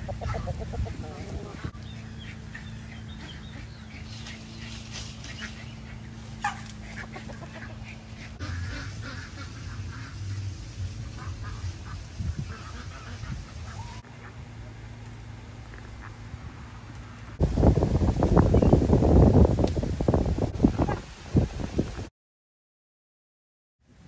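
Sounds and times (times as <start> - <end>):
chickens clucking and squawking: 0.0 - 15.1
low steady rumble: 0.0 - 21.8.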